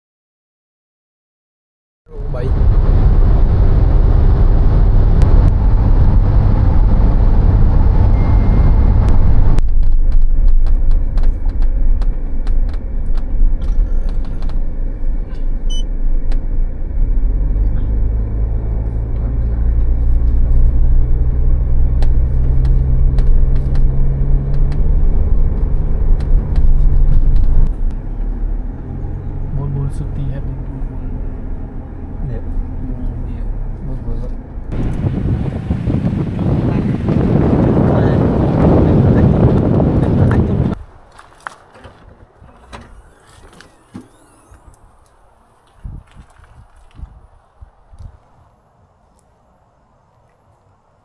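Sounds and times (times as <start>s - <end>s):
engine and road noise rumble: 2.1s - 51.0s
low engine hum: 2.1s - 51.0s.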